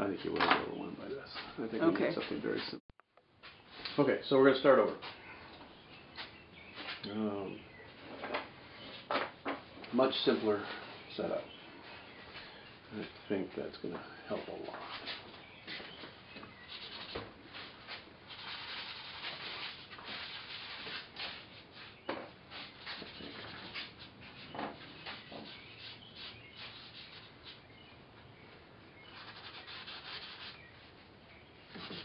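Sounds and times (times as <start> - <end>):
paint brush rubbing strokes: 16.6 - 27.9, 29.0 - 31.0, 31.7 - 32.0.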